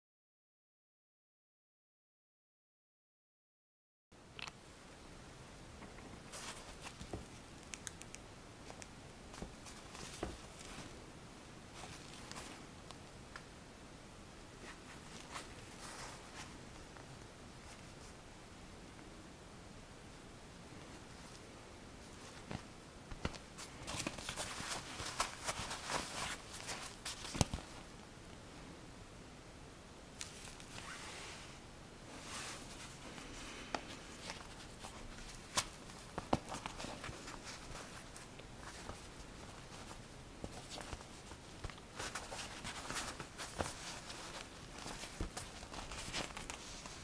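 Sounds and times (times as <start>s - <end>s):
fabric sleeve rustling: 8.6s - 11.0s, 11.7s - 12.7s, 14.6s - 17.0s, 20.9s - 28.0s, 30.2s - 47.0s.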